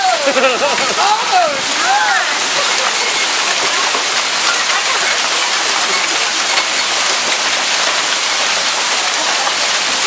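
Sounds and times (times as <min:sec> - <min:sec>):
hail and heavy rain: 0:00.0 - 0:10.0.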